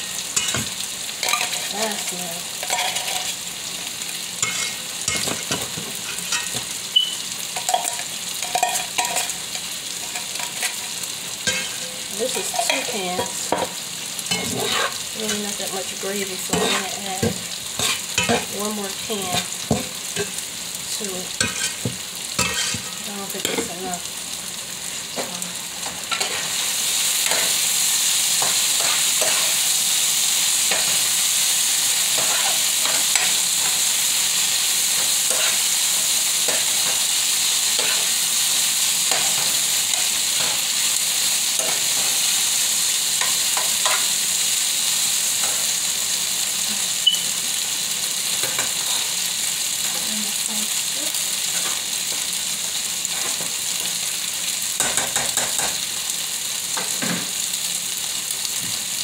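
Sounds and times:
meat sizzling in a frying pan: 0.0s - 59.0s.

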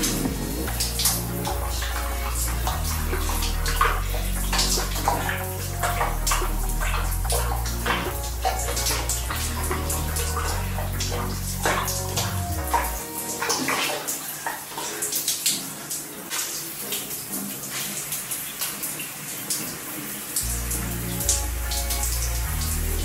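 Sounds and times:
background music: 0.0s - 14.4s, 20.4s - 23.0s
shower water splashing: 0.0s - 23.0s.

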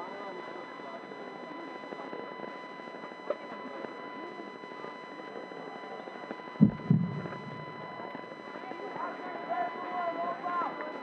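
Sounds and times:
faint steady tone: 0.0s - 11.0s
dull low thumps: 6.6s - 8.1s
crowd murmur: 6.6s - 8.6s.

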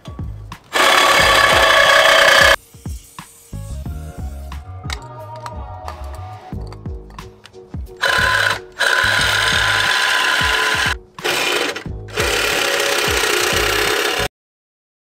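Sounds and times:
reciprocating saw cutting steel: 0.7s - 3.7s, 8.0s - 14.3s.

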